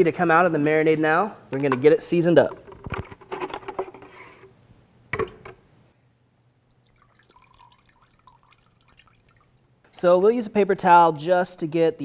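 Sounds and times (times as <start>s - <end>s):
marinade dripping: 6.6s - 9.9s.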